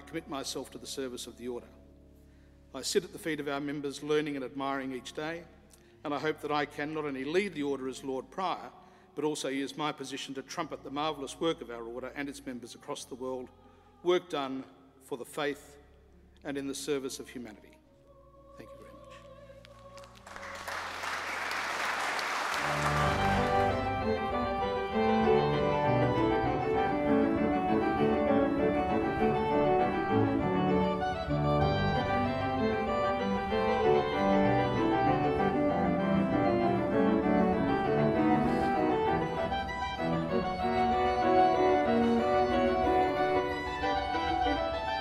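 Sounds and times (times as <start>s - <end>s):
organ music: 0.0s - 17.6s, 18.6s - 45.0s
applause: 20.0s - 23.9s.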